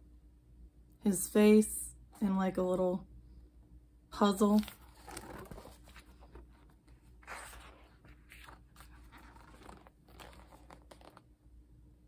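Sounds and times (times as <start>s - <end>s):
book pages rustling: 4.4s - 11.3s.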